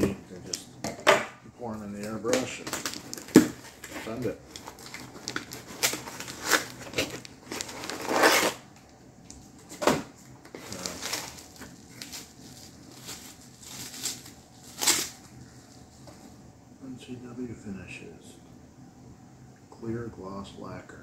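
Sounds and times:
packaging rustling: 2.0s - 9.8s, 10.4s - 16.3s.

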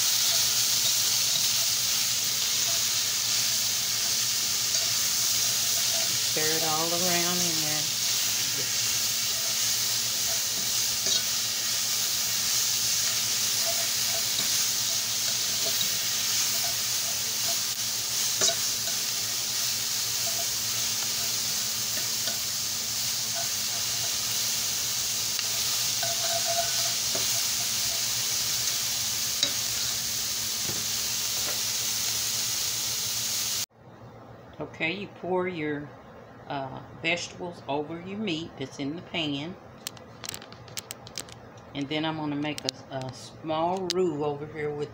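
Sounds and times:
vegetables sizzling in a skillet: 0.0s - 33.7s.

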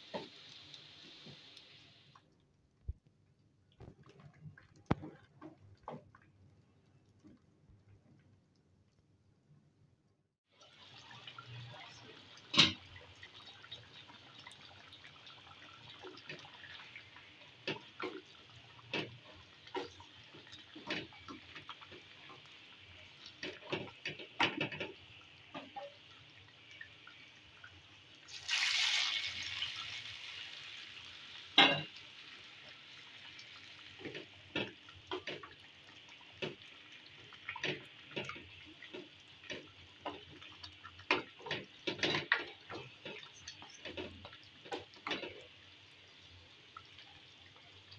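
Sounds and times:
hot oil sizzling: 0.0s - 2.1s, 10.5s - 47.9s
stew bubbling: 1.6s - 9.5s.

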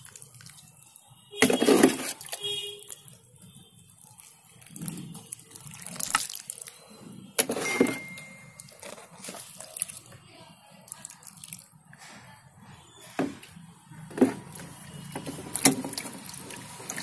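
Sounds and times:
water splashing onto soil: 4.1s - 6.7s.

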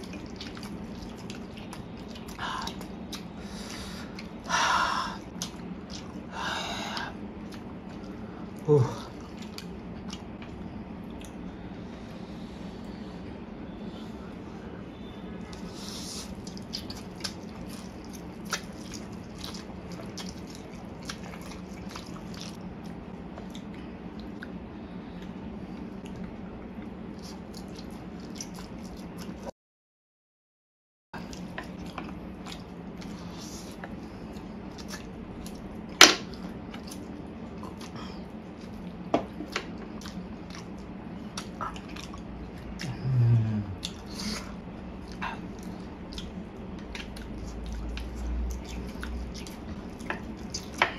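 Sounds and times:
slurping and chewing noodles: 0.0s - 4.5s, 15.0s - 22.6s
steady low hum: 0.0s - 29.5s, 31.2s - 50.9s.

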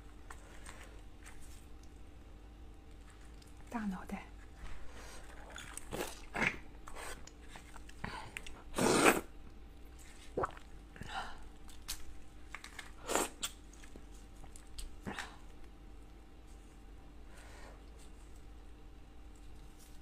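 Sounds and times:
wet sucking and biting: 5.3s - 9.3s
shell crackling being peeled: 11.6s - 15.8s.

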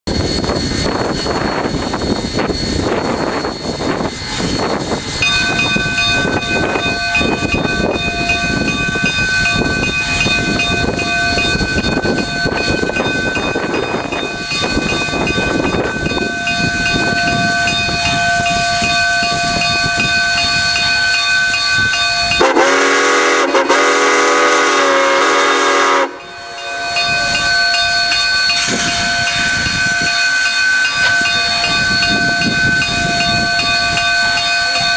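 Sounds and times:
steady high whine: 0.1s - 34.9s
steam locomotive hissing: 0.1s - 34.9s
steam whistle blast: 22.3s - 34.4s.

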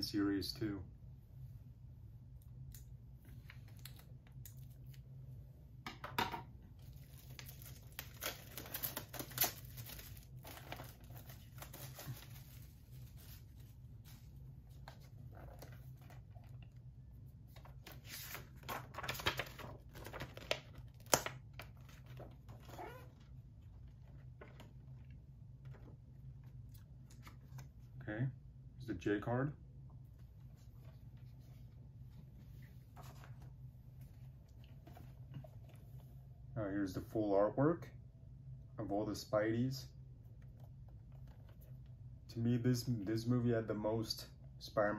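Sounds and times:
low steady hum: 0.0s - 44.9s
plastic wrap tearing and crinkling: 6.8s - 13.7s.

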